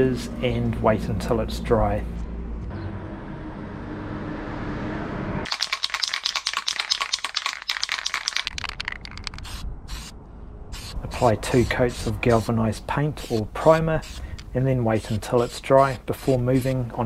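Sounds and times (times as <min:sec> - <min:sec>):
aerosol can ball rattling: 0:05.5 - 0:10.1.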